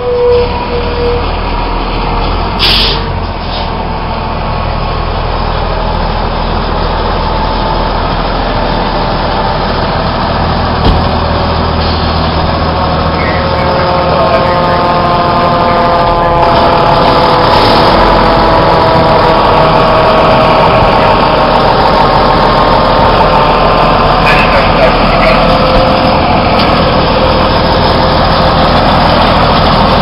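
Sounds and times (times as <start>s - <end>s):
diesel engine rumbling: 0.0s - 30.0s
sharp knock: 10.8s - 11.2s.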